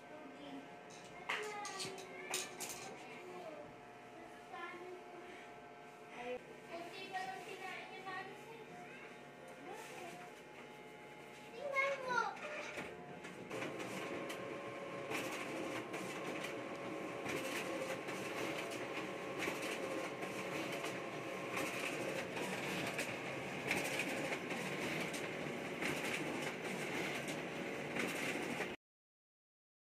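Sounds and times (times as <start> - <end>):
copier mechanical whirr: 0.0 - 28.8
paper feeding clacks and swishes: 11.6 - 28.8.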